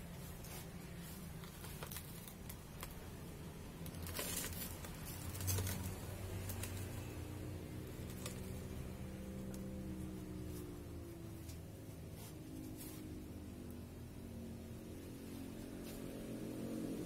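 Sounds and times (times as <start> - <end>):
clicks and rustles of potted plant: 0.1 - 3.2, 3.8 - 13.3.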